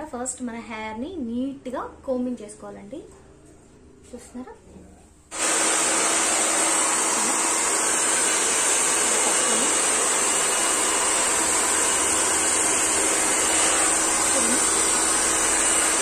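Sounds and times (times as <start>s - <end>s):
hair dryer running: 5.3s - 16.0s.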